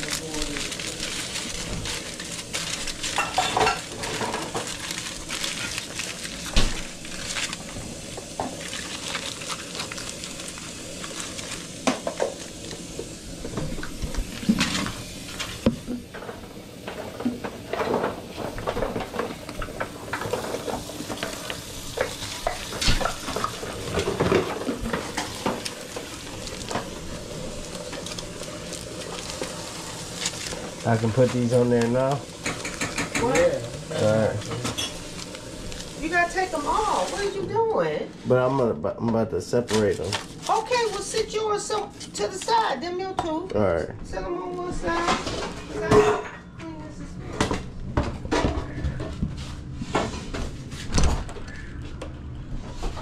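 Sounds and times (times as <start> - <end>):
metal utensils clinking and scraping: 0.0 - 6.0, 30.2 - 35.2
food sizzling: 0.0 - 46.4.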